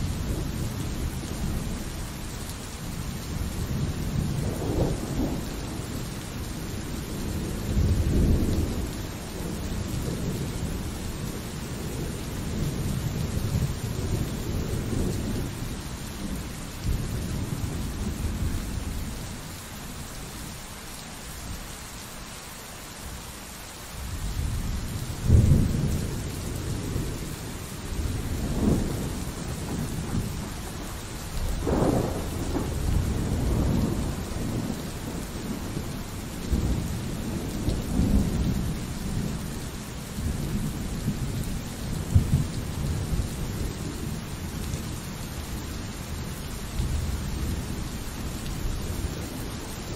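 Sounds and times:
steady rain: 0.0 - 49.9
thunder: 3.7 - 5.9, 24.4 - 39.4, 40.2 - 44.8.

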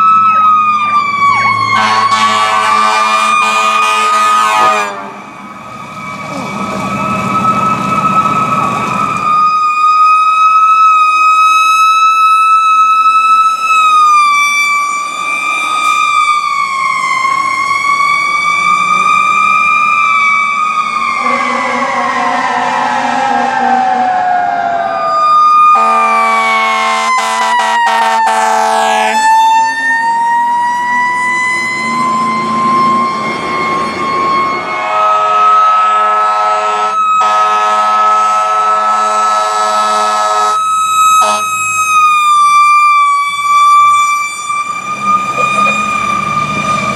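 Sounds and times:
fire engine sirens wailing: 0.0 - 46.9
air horn blasts: 1.8 - 5.2, 25.8 - 29.2, 34.7 - 40.6, 41.2 - 41.5.

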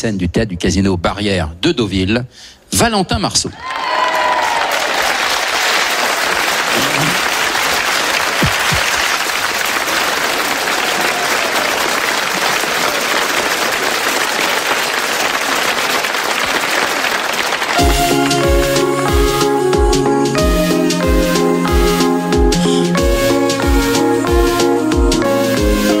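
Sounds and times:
audience applauding: 3.6 - 18.8
band playing with steady beat: 17.8 - 26.0.

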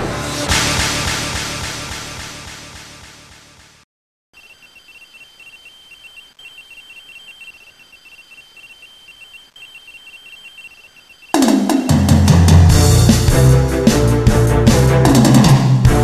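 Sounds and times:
drum-led music: 0.0 - 3.8, 11.4 - 16.0
short electronic beeps: 4.4 - 11.4.

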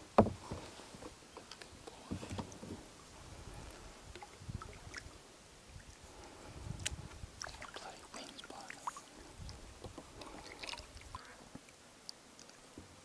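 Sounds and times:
paddle dipping into water: 0.2 - 11.8
water dripping off paddle: 6.8 - 12.6.

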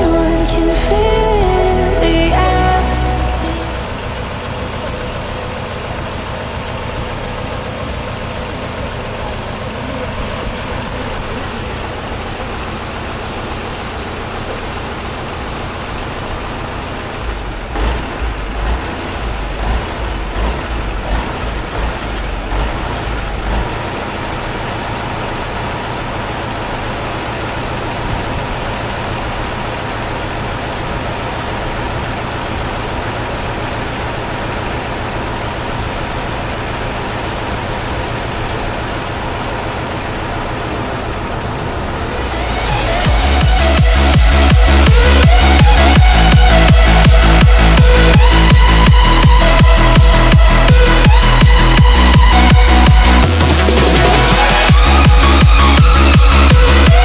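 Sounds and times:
diesel bus engine running: 0.0 - 57.0
heavy low thumps: 42.2 - 57.0.

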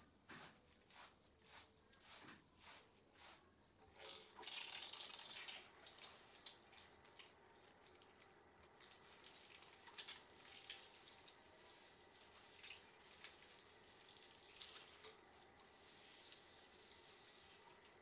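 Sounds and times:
shampoo lather squishing: 0.4 - 18.0.

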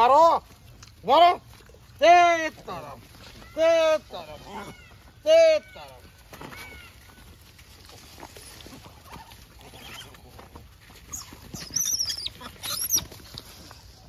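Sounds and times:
rustling on dry ground: 0.0 - 14.0
monkeys squealing: 9.7 - 10.1, 11.1 - 13.2.

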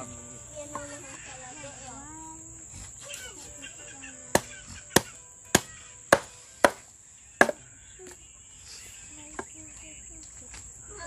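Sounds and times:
cleaver chopping onto wooden plank: 4.4 - 6.8, 7.4 - 7.6.

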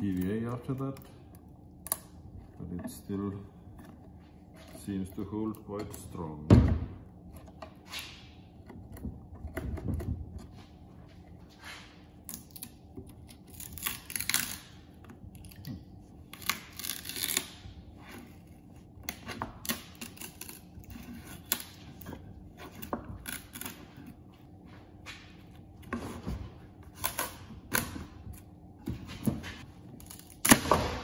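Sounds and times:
fibreglass crackling and tearing: 13.5 - 14.6, 16.3 - 17.6.

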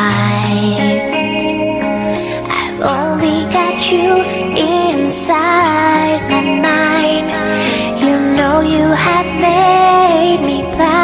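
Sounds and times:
person singing pop song: 0.0 - 11.0
pop backing track: 0.0 - 11.0.

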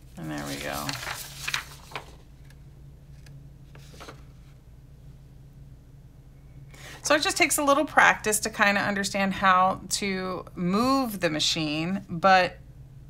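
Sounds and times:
paper rustling: 0.0 - 4.6
low steady hum: 0.0 - 13.0.

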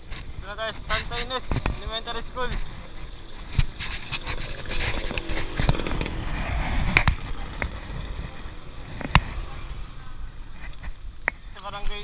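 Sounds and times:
wind buffeting microphone: 0.0 - 11.4
road rumble: 0.0 - 12.0.

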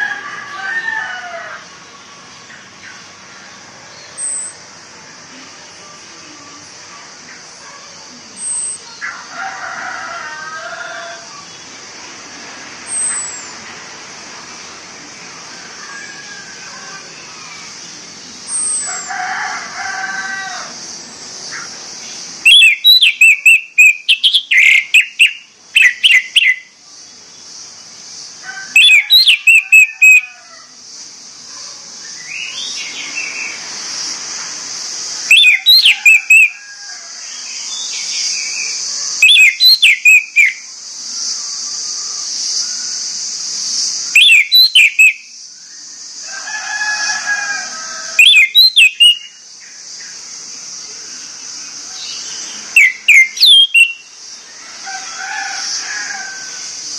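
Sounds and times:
thrush singing whistled notes: 22.0 - 28.0, 28.7 - 30.4, 35.1 - 36.6, 37.3 - 43.1, 43.9 - 46.0, 48.1 - 50.2, 52.0 - 54.5.

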